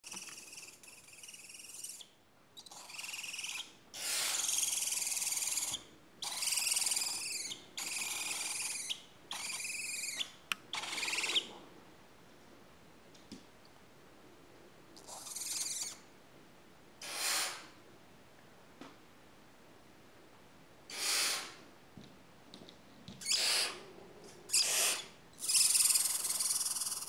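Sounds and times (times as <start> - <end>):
owl chicks screeching: 0.0 - 11.5, 15.0 - 16.0, 20.9 - 21.5, 23.2 - 23.8, 24.5 - 27.0.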